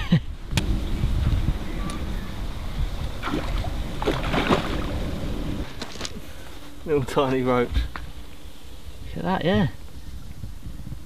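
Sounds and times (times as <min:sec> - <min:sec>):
wind rumble on microphone: 0:00.0 - 0:11.0
water splashing and streaming: 0:01.4 - 0:05.8.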